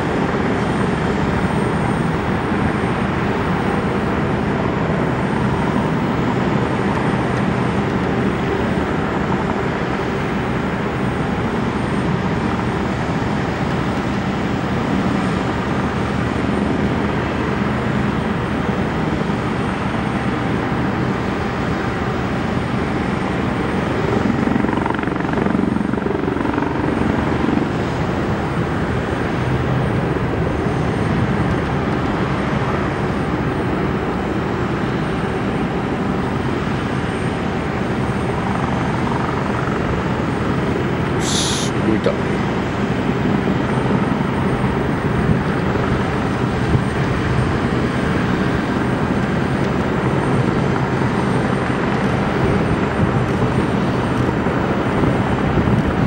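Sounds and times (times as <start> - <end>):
aircraft engine rumble: 0.0 - 56.0.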